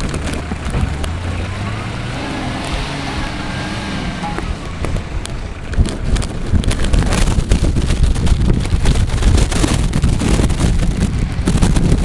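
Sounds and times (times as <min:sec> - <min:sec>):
off-road vehicle engine: 0:00.0 - 0:12.0
wind buffeting microphone: 0:00.0 - 0:12.0.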